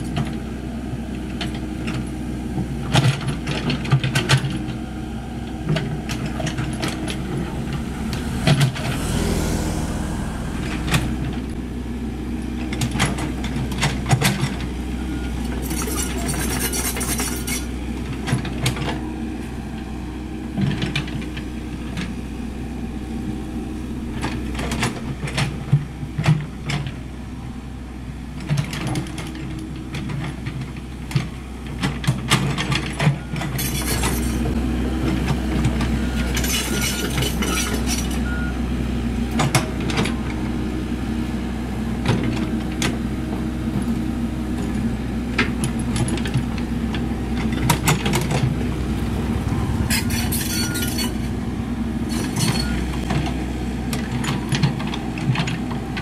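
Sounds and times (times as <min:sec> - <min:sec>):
excavator diesel engine running: 0:00.0 - 0:56.0
excavator bucket clanking: 0:12.6 - 0:19.1, 0:28.4 - 0:38.5, 0:43.8 - 0:56.0.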